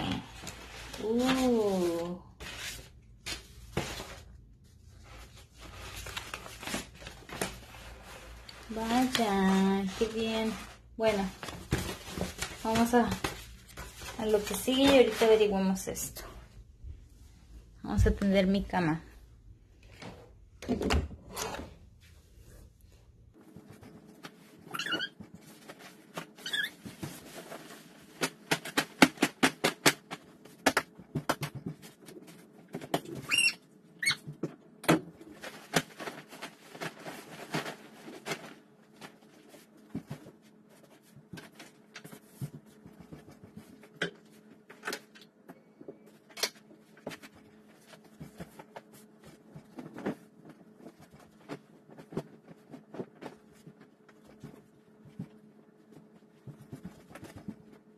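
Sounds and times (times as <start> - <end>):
high squeaks: 24.7 - 25.2.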